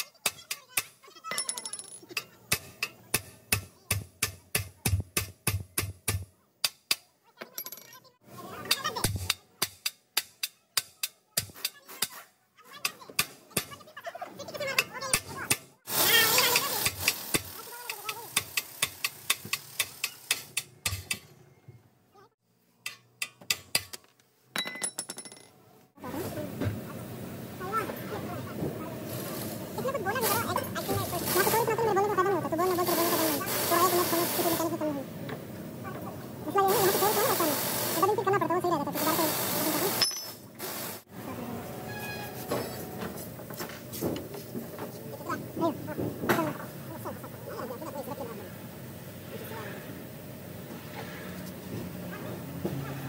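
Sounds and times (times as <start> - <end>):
hammer striking metal: 18.3 - 21.3.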